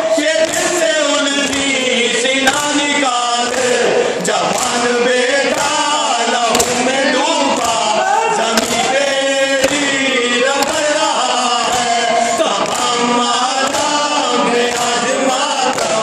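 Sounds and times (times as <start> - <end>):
man reciting through a microphone: 0.0 - 16.0
men chanting a lament: 0.0 - 16.0
hands slapping chests: 2.5 - 2.8, 4.5 - 4.8, 6.5 - 7.8, 8.6 - 9.0, 9.6 - 10.0, 10.6 - 11.0.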